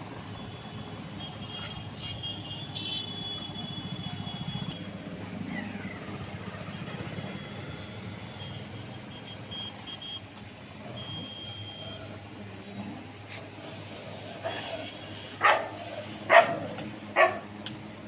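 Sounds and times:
short high-pitched beeps: 8.4s - 10.2s, 11.0s - 12.2s.

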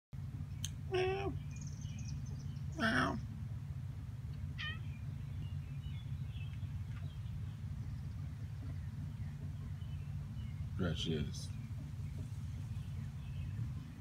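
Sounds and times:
steady low rumble: 0.2s - 14.0s
cat meowing: 4.6s - 4.9s.

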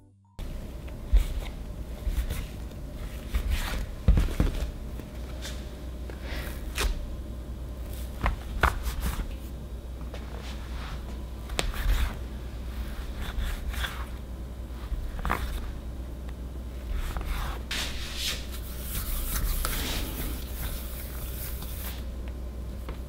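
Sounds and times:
low steady hum: 0.0s - 23.0s.

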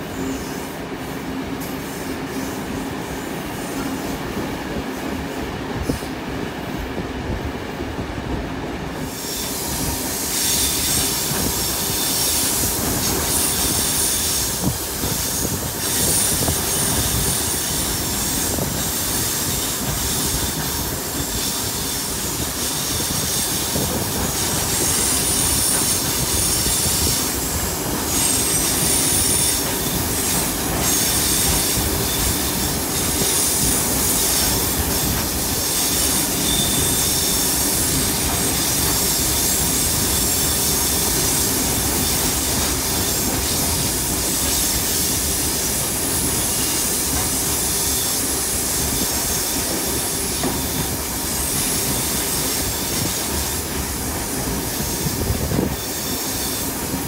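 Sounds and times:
train wheels rumbling on rails: 0.0s - 57.0s
high-pitched wheel squeal: 35.7s - 37.8s.

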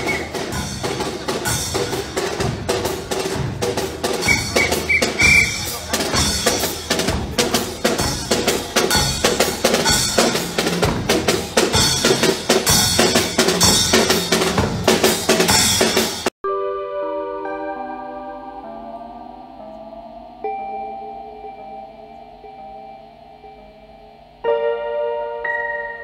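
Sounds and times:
drums and percussion fast beat: 0.0s - 16.3s.

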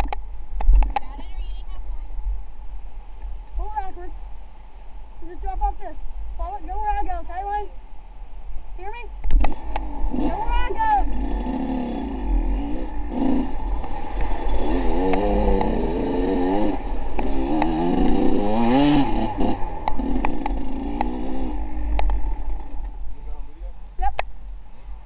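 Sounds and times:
sharp clicks: 9.2s - 9.9s
engines revving: 9.3s - 23.6s.

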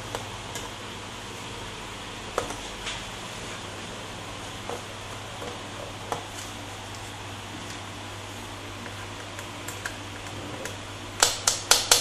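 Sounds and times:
steady room hum: 0.0s - 12.0s.

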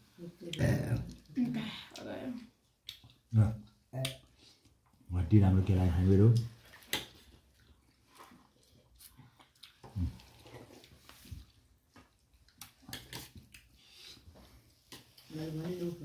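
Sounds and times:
chewing: 0.5s - 5.0s, 6.4s - 15.3s
fingers squishing food: 2.8s - 3.3s, 6.8s - 13.8s.

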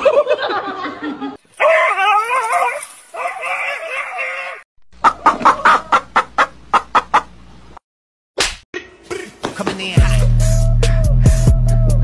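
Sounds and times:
wavering cry: 1.6s - 4.6s
chickens clucking: 5.0s - 7.4s.

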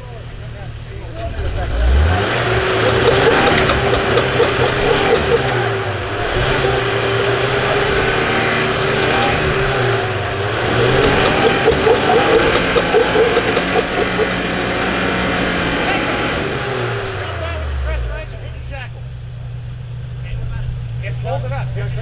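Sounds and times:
truck engine revving: 0.0s - 19.4s
steady whine: 2.3s - 16.6s.

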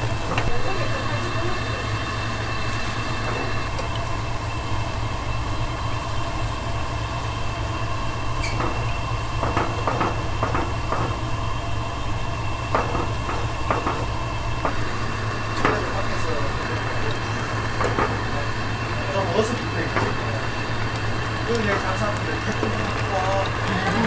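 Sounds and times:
broth boiling: 0.0s - 24.0s
low kitchen rumble: 0.0s - 24.0s.

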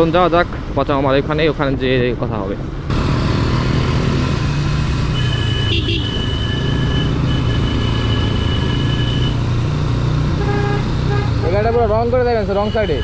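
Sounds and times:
motorcycle engine and road noise: 0.0s - 13.0s
vehicle horn: 5.1s - 9.4s, 10.4s - 11.5s, 12.5s - 13.0s.

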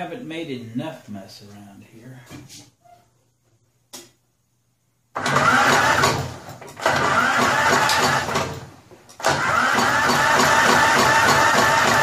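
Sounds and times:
electric starter cranking engine: 5.2s - 12.0s.

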